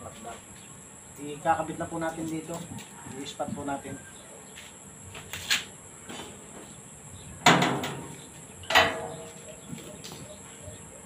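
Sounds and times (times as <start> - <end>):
metal clanks and knocks: 7.4 - 9.4.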